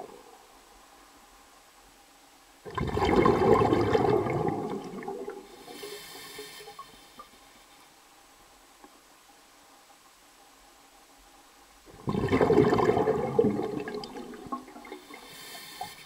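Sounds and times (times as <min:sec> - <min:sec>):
hiss: 0:05.4 - 0:07.8, 0:15.0 - 0:16.0
water rushing: 0:11.9 - 0:15.9.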